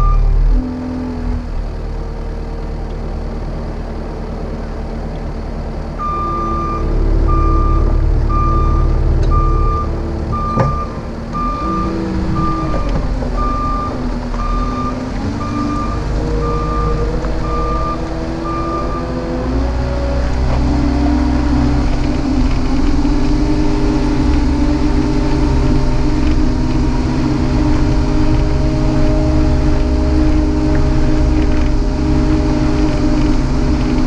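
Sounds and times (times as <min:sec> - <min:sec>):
backup alarm beeping: 0:00.0 - 0:00.4, 0:06.0 - 0:19.2
diesel engine running: 0:00.0 - 0:34.0.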